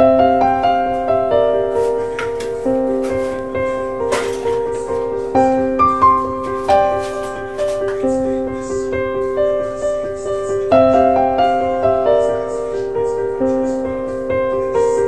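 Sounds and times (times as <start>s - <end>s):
background piano music: 0.0s - 15.0s.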